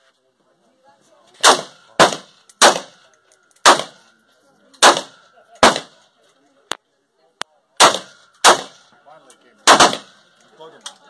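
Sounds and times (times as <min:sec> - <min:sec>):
gunshots with echo: 0:01.4 - 0:03.0, 0:03.6 - 0:04.0, 0:04.8 - 0:06.0, 0:07.8 - 0:08.9, 0:09.6 - 0:10.2.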